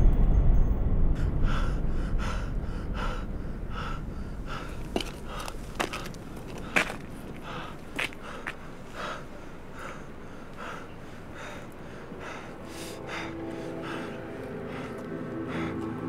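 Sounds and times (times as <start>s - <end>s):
man panting hard: 1.2s - 16.0s
sustained music tones: 10.1s - 16.0s.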